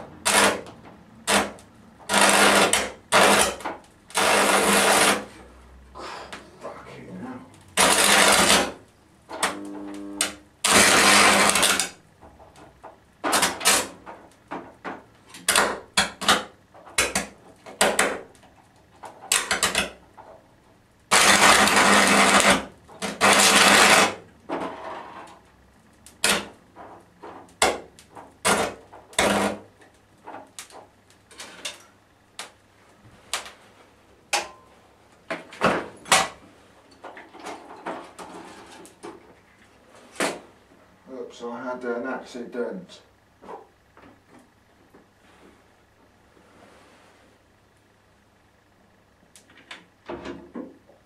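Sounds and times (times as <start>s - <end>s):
electric arc buzzing and crackling: 0.0s - 5.8s, 6.4s - 36.5s.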